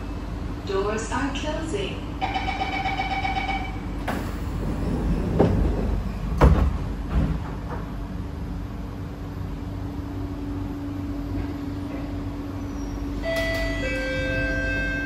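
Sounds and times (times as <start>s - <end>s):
train door closing chime: 2.2s - 5.5s, 13.2s - 15.0s
sliding doors closing with thuds: 4.0s - 8.1s.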